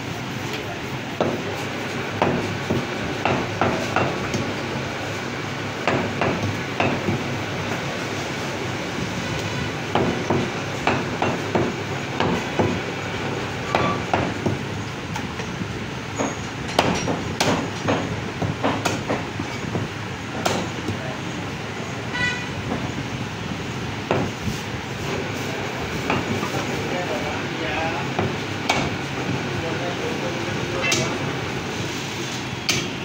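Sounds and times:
cleaver chopping meat on wood block: 0:02.2 - 0:04.5, 0:05.8 - 0:07.3, 0:09.9 - 0:12.8, 0:13.7 - 0:14.6, 0:16.8 - 0:21.0, 0:24.1 - 0:24.4, 0:28.2 - 0:29.0.

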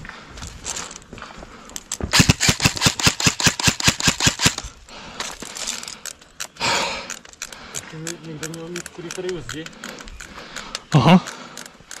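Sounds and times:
airsoft rifle rapid firing: 0:02.1 - 0:04.7
faint clicks: 0:05.2 - 0:12.0.

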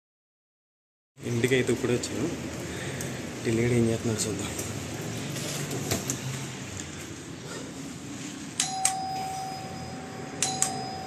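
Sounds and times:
doorbell button click: 0:08.6 - 0:11.0
electronic doorbell chime: 0:08.6 - 0:11.0.

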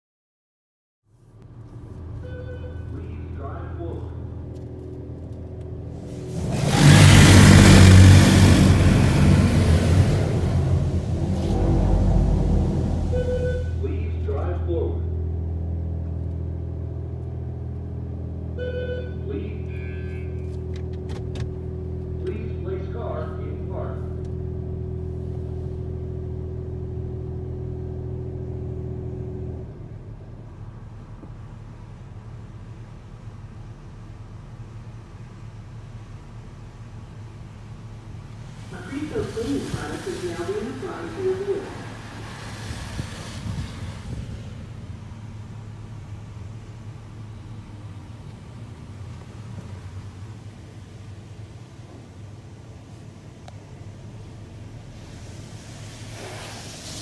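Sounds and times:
faint rumbling noise: 0:01.1 - 0:57.0
low motor hum: 0:01.1 - 0:57.0
car engine revving: 0:01.4 - 0:57.0
loud hiss: 0:06.0 - 0:14.0, 0:38.4 - 0:46.1, 0:53.9 - 0:57.0.

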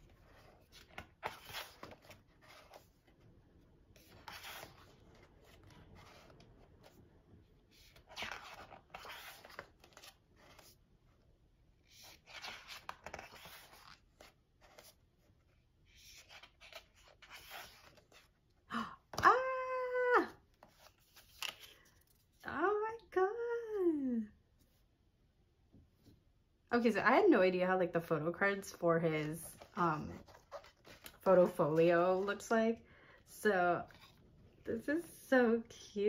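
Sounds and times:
book pages turning: 0:00.0 - 0:10.8, 0:11.8 - 0:18.4, 0:20.5 - 0:22.4, 0:28.7 - 0:32.4, 0:33.8 - 0:34.2.

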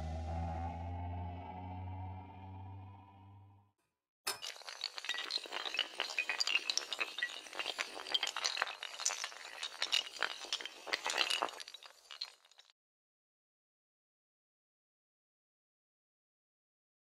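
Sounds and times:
dominoes toppling: 0:04.4 - 0:12.7.

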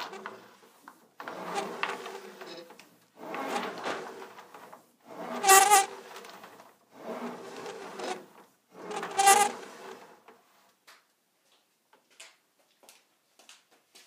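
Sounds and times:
metal tubing squeaking creak: 0:05.1 - 0:06.3, 0:07.0 - 0:10.0.

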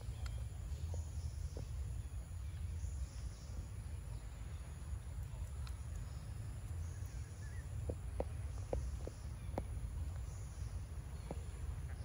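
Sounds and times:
bird chirps: 0:00.0 - 0:12.0
soft clicks: 0:05.2 - 0:06.8.

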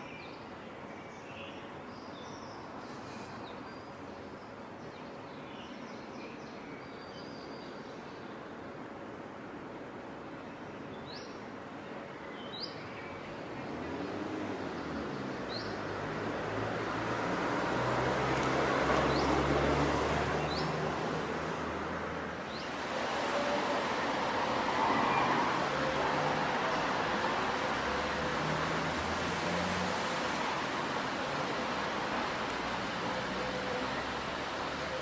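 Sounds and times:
vehicle passing: 0:13.6 - 0:35.0.

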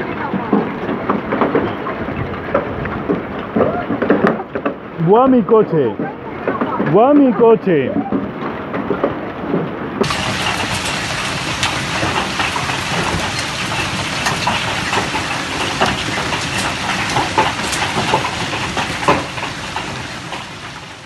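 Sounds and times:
heavy hail and rain: 0:00.0 - 0:21.0
hailstones knocking hard surfaces: 0:10.0 - 0:21.0.

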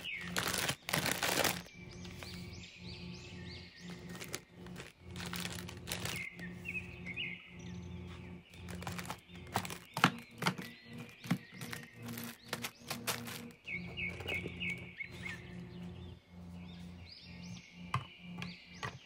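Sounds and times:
plastic packets crinkling: 0:00.0 - 0:02.4, 0:03.9 - 0:06.5, 0:08.5 - 0:13.6.

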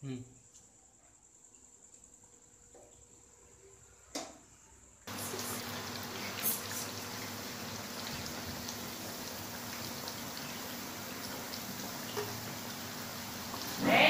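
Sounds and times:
oil sizzling and crackling: 0:05.1 - 0:14.0.

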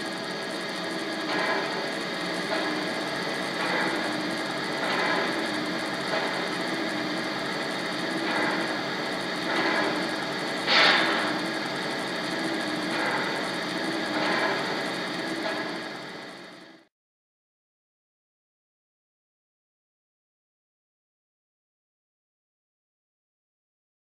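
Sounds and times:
model train mechanical hum: 0:00.0 - 0:16.9
model train hiss: 0:01.1 - 0:15.8.

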